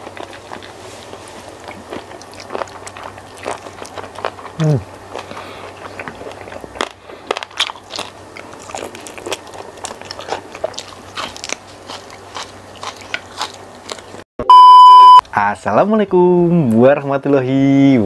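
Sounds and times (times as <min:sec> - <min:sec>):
biting and chewing: 0:00.0 - 0:14.2.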